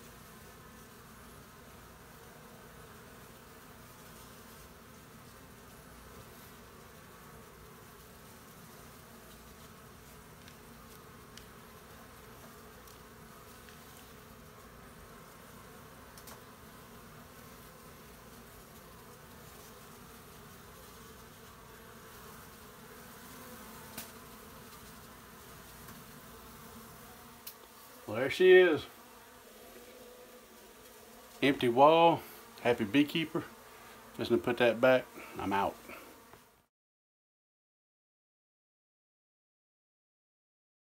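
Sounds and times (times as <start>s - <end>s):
bees buzzing: 0.0s - 36.7s.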